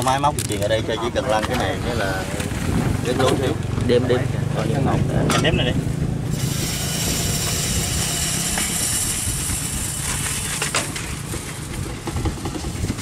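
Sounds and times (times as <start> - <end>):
high hiss: 6.3 - 10.6.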